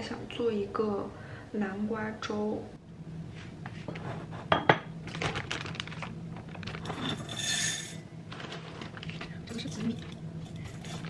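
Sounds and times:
dry grains rattling into pot: 6.6 - 11.0
metallic ring: 7.0 - 8.0.

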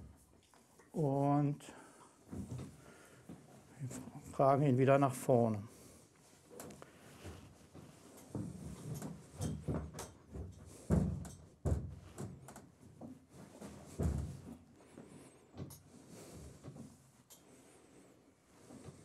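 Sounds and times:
horse hooves thumping on ramp: 8.3 - 14.7.

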